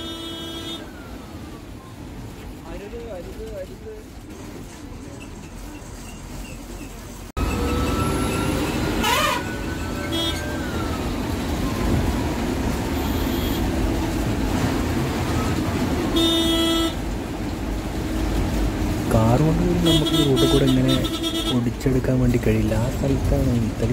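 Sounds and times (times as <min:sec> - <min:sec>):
bus horn toot: 0:00.0 - 0:01.0, 0:07.4 - 0:10.9, 0:13.0 - 0:13.8, 0:16.1 - 0:17.0, 0:19.8 - 0:21.7
bus engine and road rumble: 0:00.0 - 0:23.9.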